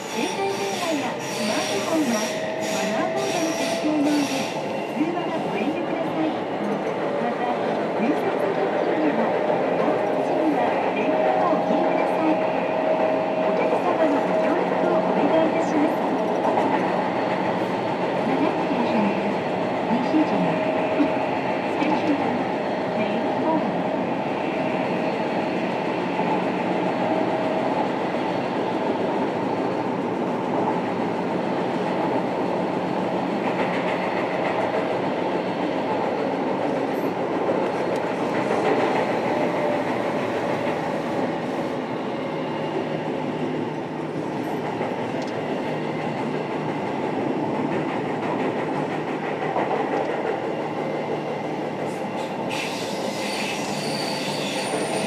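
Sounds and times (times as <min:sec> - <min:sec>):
train wheels on rail: 0:00.0 - 0:55.0
high squeal: 0:52.5 - 0:55.0.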